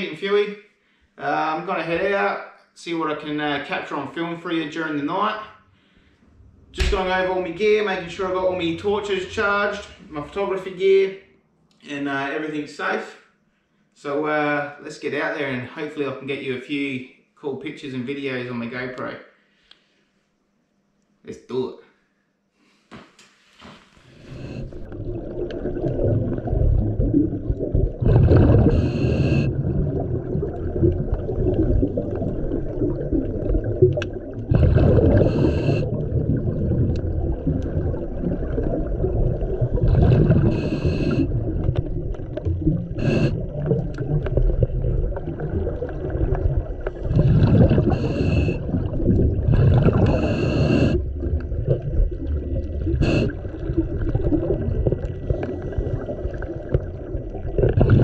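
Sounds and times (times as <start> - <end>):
regulator breath hissing: 22.6 - 24.9, 28.4 - 29.5, 34.7 - 36.0, 40.3 - 41.3, 43.0 - 43.6, 47.8 - 48.8, 50.0 - 51.1, 52.9 - 53.5
underwater bubbles rumbling: 24.3 - 58.0.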